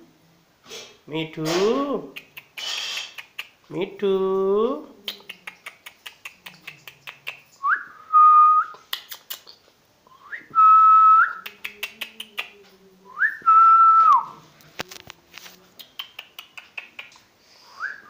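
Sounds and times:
man whistling: 7.6s - 8.8s, 10.1s - 11.4s, 13.2s - 14.3s, 17.8s - 18.0s.

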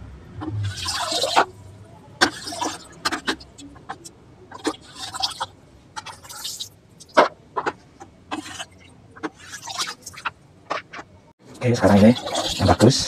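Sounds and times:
water splashing and dripping: 0.4s - 1.6s, 2.2s - 7.3s, 8.3s - 10.4s.

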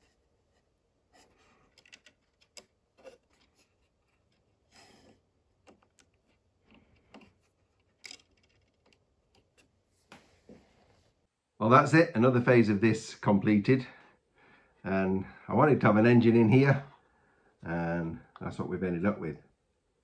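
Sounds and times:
small plastic parts clicking: 1.6s - 4.5s, 5.6s - 9.7s.

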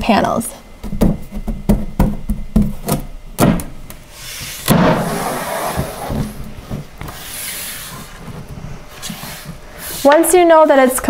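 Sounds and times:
board rubbing slide: 4.1s - 10.2s.

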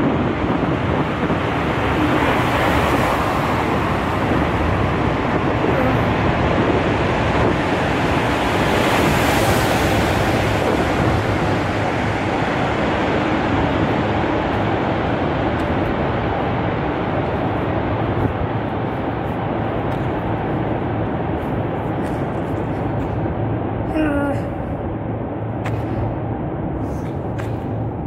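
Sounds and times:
road tunnel roar: 0.0s - 28.0s.

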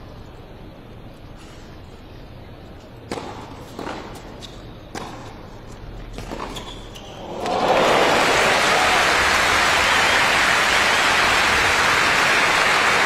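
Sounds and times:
racket hitting tennis ball: 3.1s - 5.5s, 6.1s - 6.7s
crowd applause: 7.3s - 13.0s.

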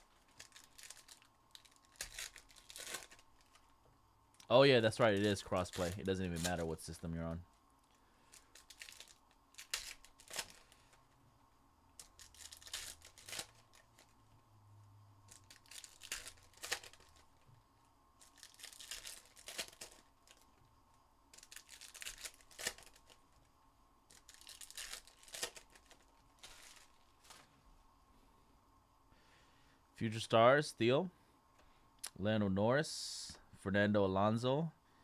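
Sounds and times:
foil wrappers tearing and crinkling: 0.0s - 3.6s, 4.8s - 7.0s, 8.2s - 11.0s, 12.0s - 14.2s, 15.3s - 17.3s, 18.2s - 20.5s, 21.3s - 23.3s, 24.1s - 27.5s.

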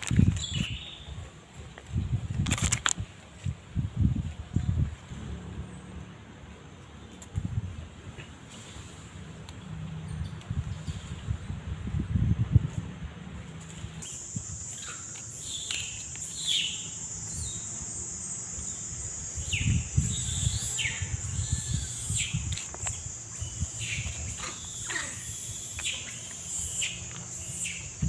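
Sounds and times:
birds chirping: 0.1s - 1.2s, 14.0s - 28.0s
high insect buzz: 14.0s - 28.0s.

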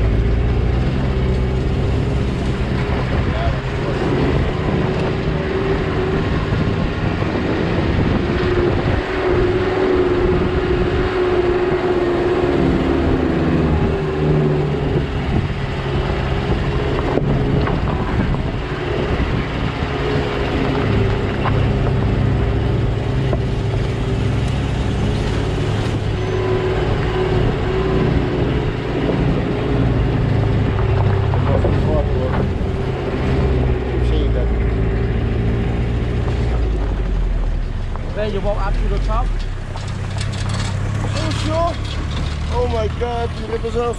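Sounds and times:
car engine hum: 0.0s - 43.9s
tyre and road noise: 0.0s - 43.9s.

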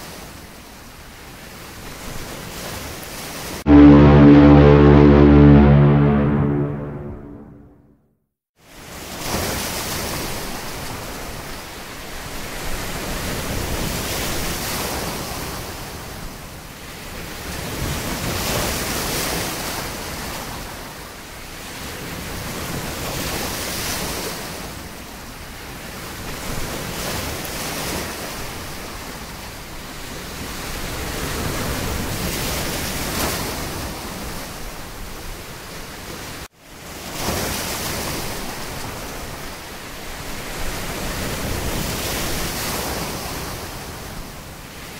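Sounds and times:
ocean waves washing in: 3.7s - 7.7s.

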